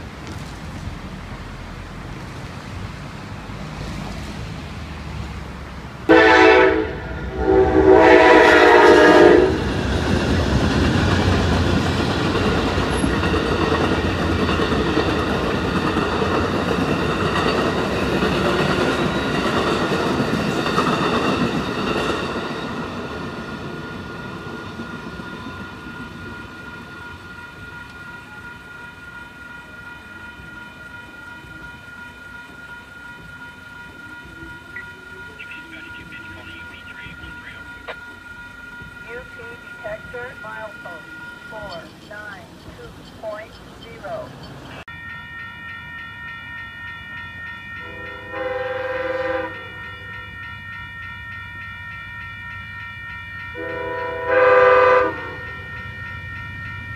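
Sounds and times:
train rail clatter: 0:00.0 - 0:06.9, 0:07.9 - 0:56.9
crossing warning bell ringing: 0:05.0 - 0:56.9
locomotive horn blasts: 0:06.1 - 0:09.7, 0:47.8 - 0:49.8, 0:53.6 - 0:55.5.

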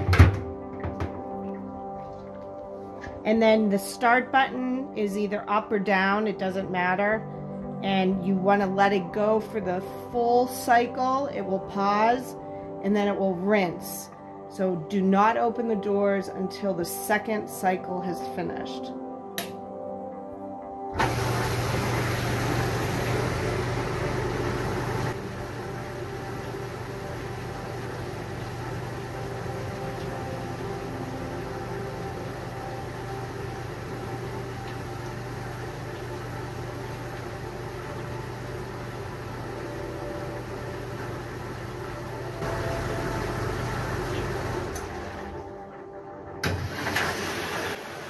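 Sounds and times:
dishwasher running: 0:00.0 - 0:01.4, 0:21.0 - 0:45.8, 0:46.4 - 0:48.0.

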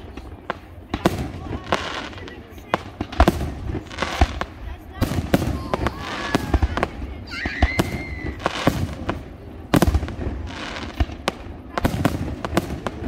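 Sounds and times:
fireworks bursts and bangs: 0:00.0 - 0:13.0
fireworks crackling: 0:00.0 - 0:13.0
rising firework whistle: 0:07.3 - 0:08.7.

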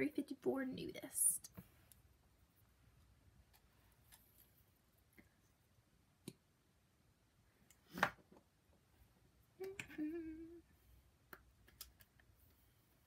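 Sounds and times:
person humming: 0:09.6 - 0:10.7.

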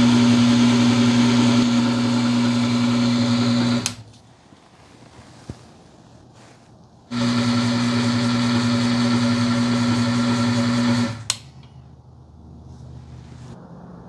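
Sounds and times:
electric motor humming and whining: 0:00.0 - 0:04.0, 0:07.1 - 0:11.2.

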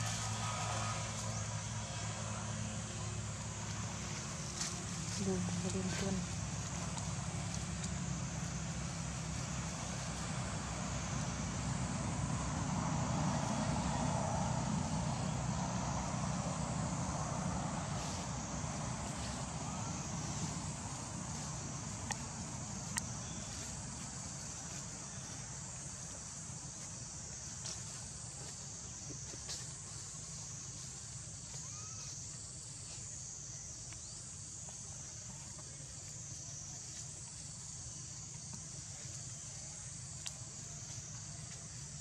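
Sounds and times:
low steady rumble: 0:00.0 - 0:31.7
insects droning: 0:00.0 - 0:42.0.

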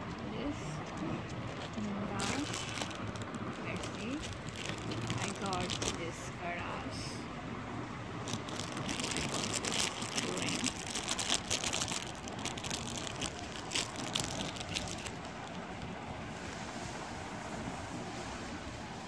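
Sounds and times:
jewellery clicking and rustling: 0:01.5 - 0:06.1, 0:08.3 - 0:15.6.

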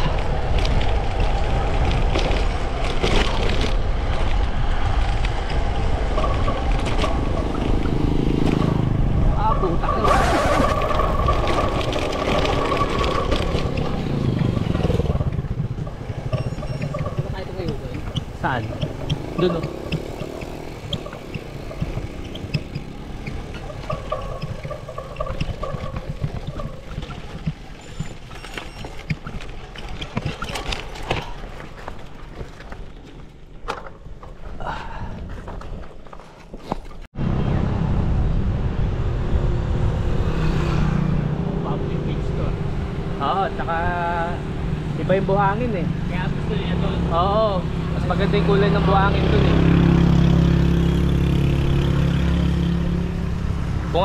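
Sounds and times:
wind rushing over microphone: 0:00.0 - 0:23.5
clicks and rattles from road: 0:00.0 - 0:37.1
bike tyre rumble: 0:00.0 - 0:54.0.

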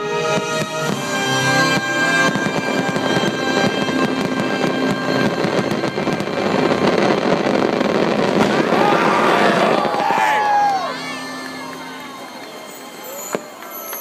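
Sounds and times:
fireworks show music: 0:00.0 - 0:14.0
firework pops and crackle: 0:11.3 - 0:14.0.

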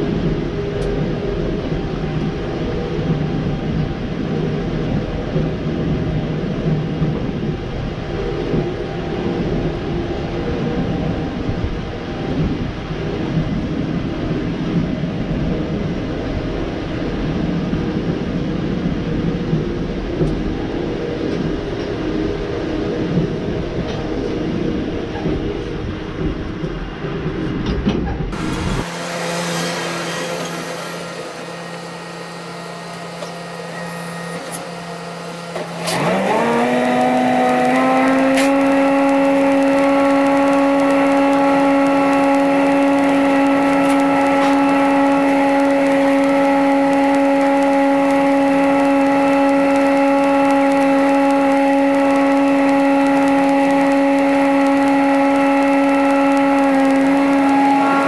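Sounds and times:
bale processor whine: 0:28.3 - 0:58.0
rushing noise of shredded straw: 0:28.4 - 0:33.2, 0:35.5 - 0:58.0.

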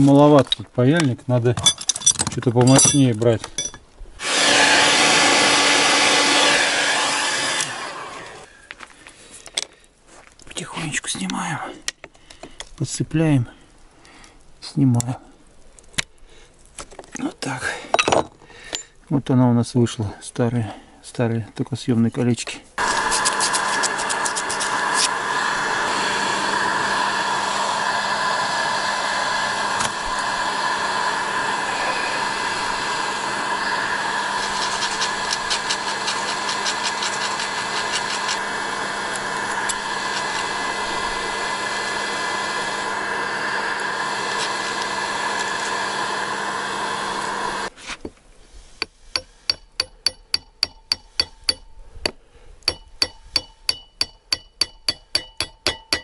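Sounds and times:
electric tool whirring: 0:04.2 - 0:08.5, 0:22.8 - 0:47.7.

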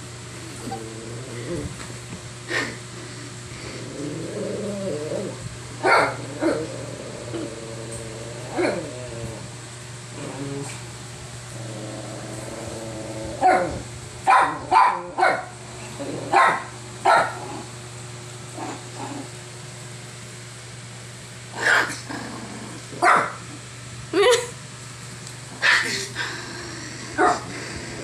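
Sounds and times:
small dog barking: 0:05.8 - 0:06.2, 0:13.4 - 0:15.5, 0:16.3 - 0:17.5, 0:23.0 - 0:23.4, 0:25.6 - 0:26.0, 0:27.2 - 0:27.5.

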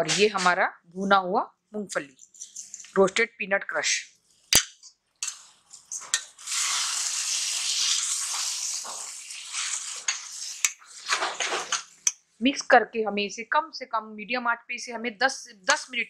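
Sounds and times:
food sizzling: 0:02.4 - 0:03.2, 0:04.4 - 0:12.1.

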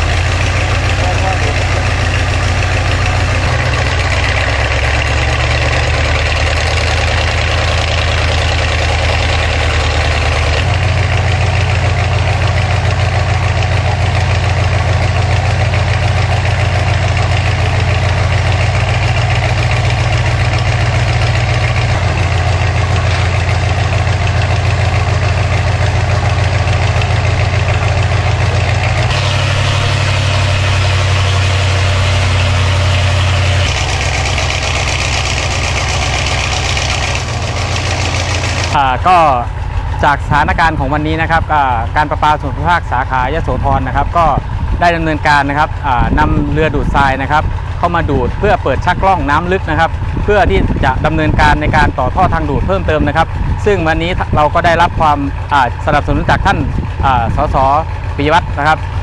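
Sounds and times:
sand and water rushing from pipe: 0:00.0 - 0:38.8
dredge boat engine running: 0:00.0 - 0:59.0.

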